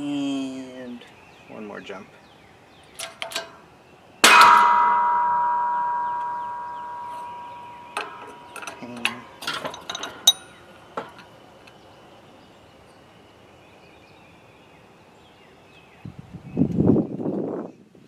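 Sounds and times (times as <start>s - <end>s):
metal clicks and clinks: 3.0s - 3.6s, 7.0s - 11.3s
metallic clang of engine block: 4.2s - 11.2s.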